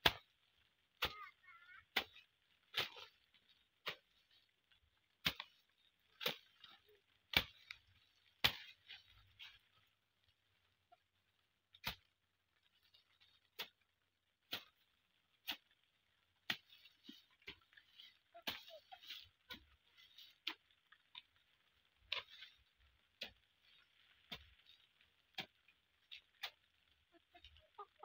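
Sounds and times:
hoe chopping into wet soil: 0:08.4 - 0:08.8.

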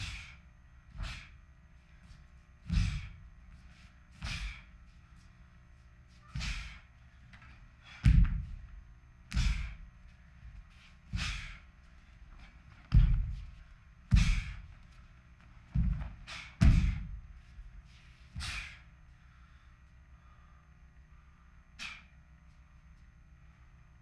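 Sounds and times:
feet stamping on floor: 0:02.1 - 0:05.0, 0:06.4 - 0:11.6, 0:12.2 - 0:17.8.

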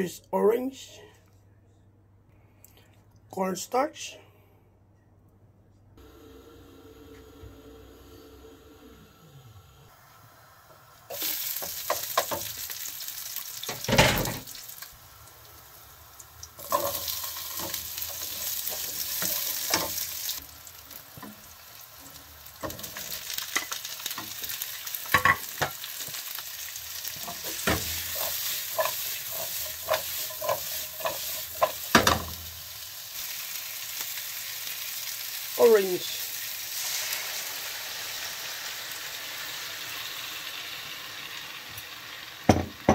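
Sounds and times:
vegetables sizzling in oil: 0:06.0 - 0:42.9
spatula scraping and knocking pan: 0:27.1 - 0:32.4.

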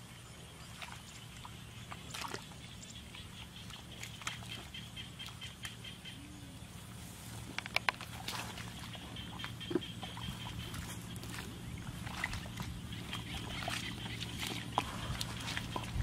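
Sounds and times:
sharp wet splashes: 0:00.7 - 0:05.9, 0:08.0 - 0:16.0
hands squelching in mud: 0:07.4 - 0:16.0.

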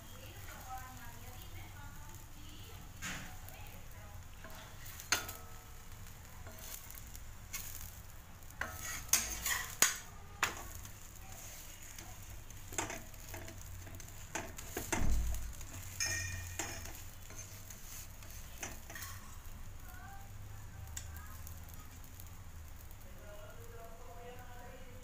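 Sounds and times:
oil sizzling in pan: 0:00.0 - 0:25.0
metal spatula scraping and tapping: 0:04.4 - 0:19.5.

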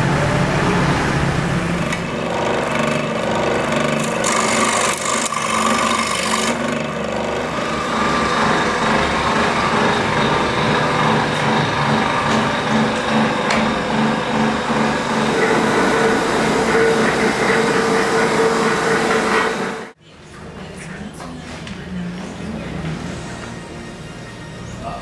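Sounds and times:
bench saw cutting wood: 0:01.8 - 0:20.0.

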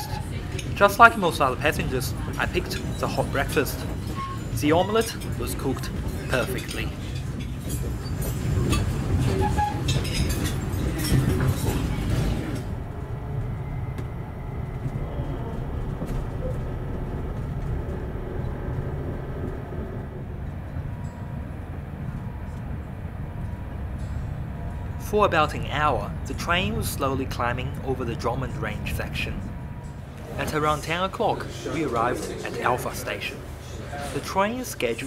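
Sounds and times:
low chatter: 0:00.0 - 0:19.7, 0:24.5 - 0:35.0
faint steady tones: 0:00.0 - 0:35.0
train rumbling: 0:00.0 - 0:35.0
cutlery and crockery clatter: 0:05.0 - 0:12.3.

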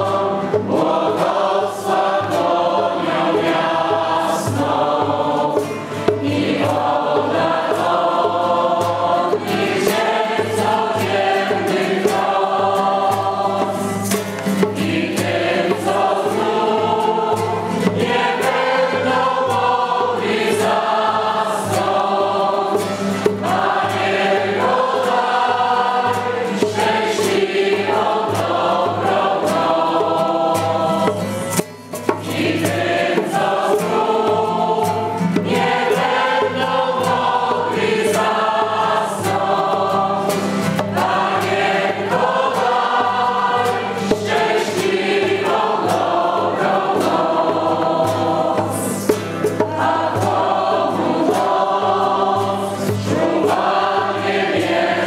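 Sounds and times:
group singing religious song: 0:00.0 - 0:55.0
strummed acoustic guitar: 0:00.0 - 0:55.0.

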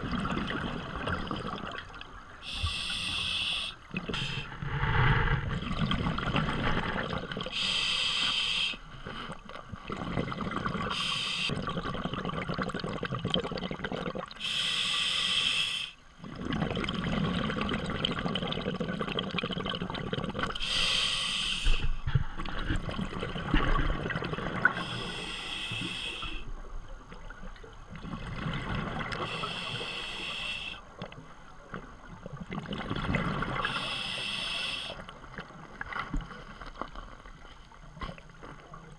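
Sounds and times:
gurgle of exhaled bubbles: 0:00.0 - 0:02.0, 0:03.9 - 0:07.6, 0:09.7 - 0:14.4, 0:16.2 - 0:20.6, 0:22.0 - 0:25.0, 0:27.2 - 0:29.5, 0:31.7 - 0:34.0
regulator hissing inhale: 0:02.4 - 0:05.4, 0:07.5 - 0:09.4, 0:10.9 - 0:11.5, 0:14.4 - 0:16.0, 0:20.6 - 0:22.1, 0:24.8 - 0:26.5, 0:29.2 - 0:30.8, 0:33.6 - 0:35.0.

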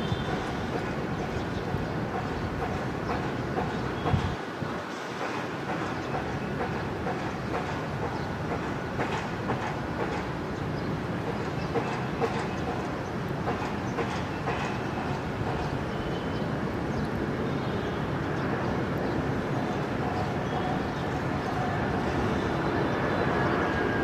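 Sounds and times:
distant jet airliner taxiing: 0:05.1 - 0:24.0.

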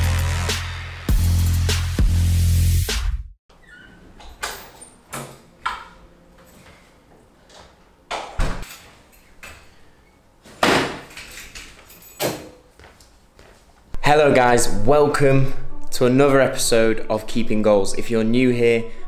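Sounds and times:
footsteps on tiled floor: 0:11.7 - 0:14.0.

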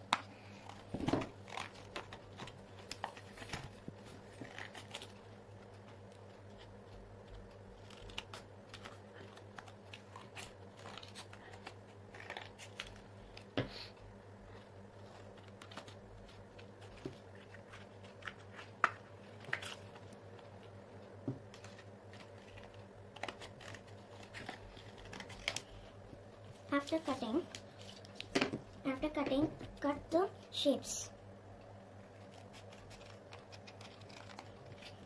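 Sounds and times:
faint steady hum: 0:00.0 - 0:35.0
scissors cutting cardboard: 0:04.2 - 0:13.4, 0:21.6 - 0:25.6, 0:32.2 - 0:35.0.

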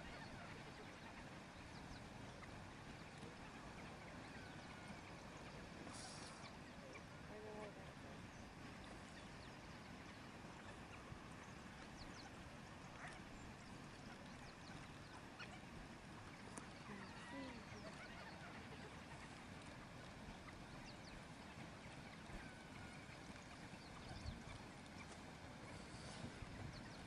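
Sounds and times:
steady low hiss: 0:00.0 - 0:27.0
wild dogs twittering and squeaking: 0:16.3 - 0:19.4.

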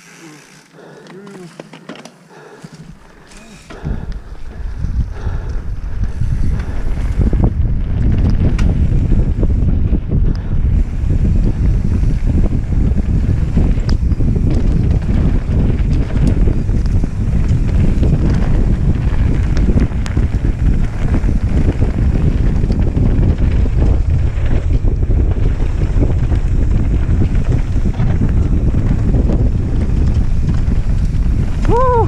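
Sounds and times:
wind buffeting microphone: 0:02.3 - 0:32.0
tyres rumbling on dirt: 0:10.8 - 0:32.0
small ticks: 0:13.8 - 0:15.0.

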